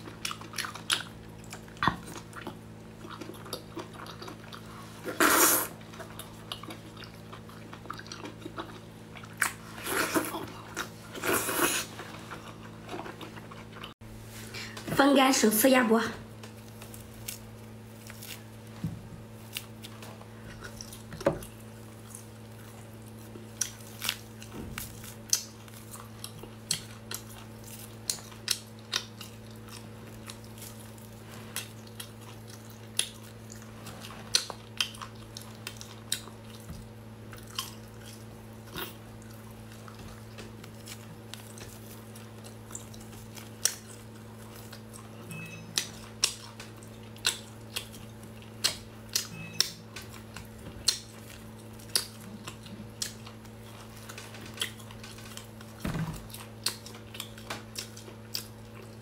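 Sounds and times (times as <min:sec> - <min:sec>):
duck neck cracking and crunching: 0:22.2 - 0:31.0.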